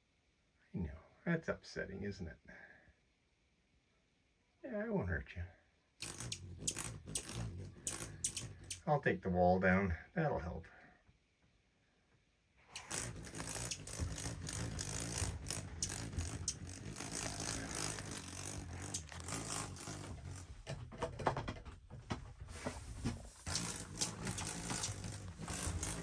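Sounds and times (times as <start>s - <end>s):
rustling and handling knocks: 20.1s - 23.3s.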